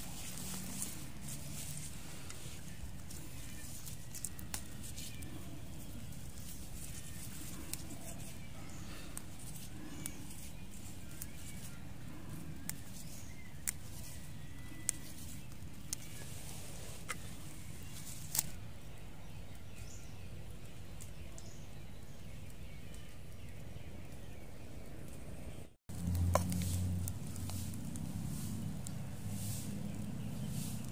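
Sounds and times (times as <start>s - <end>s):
leaves snapping and rustling: 0.0s - 16.4s, 17.0s - 18.6s, 25.9s - 30.9s
steady low rumble: 25.9s - 30.9s.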